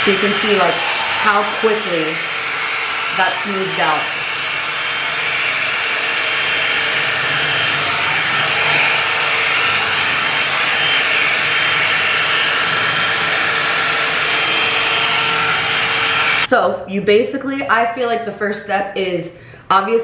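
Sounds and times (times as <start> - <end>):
rush of blown air: 0.0 - 16.5.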